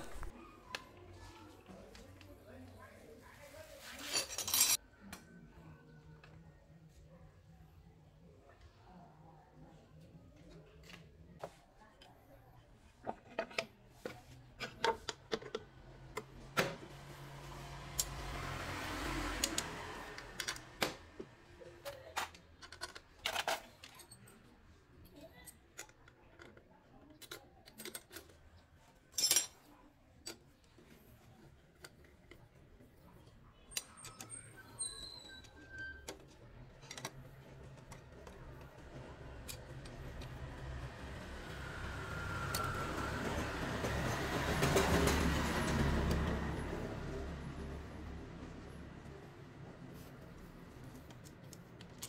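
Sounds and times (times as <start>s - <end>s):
metal tools clicking and clinking: 4.0s - 4.8s, 27.1s - 30.4s.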